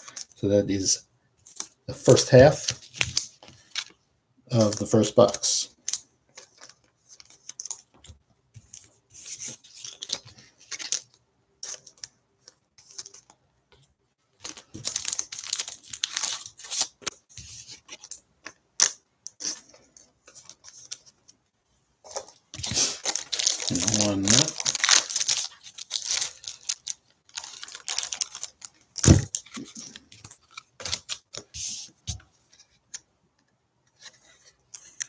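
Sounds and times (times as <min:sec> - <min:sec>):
plastic crinkling and tearing: 0:14.4 - 0:17.2, 0:22.6 - 0:31.4.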